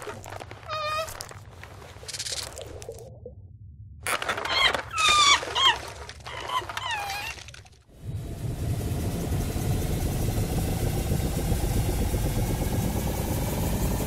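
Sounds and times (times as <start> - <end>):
flying saucer low hum: 7.9 - 14.0.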